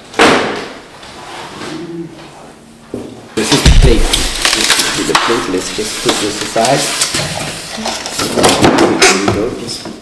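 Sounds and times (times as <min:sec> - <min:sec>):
foam and plastic wrap rustling: 0:03.4 - 0:08.6.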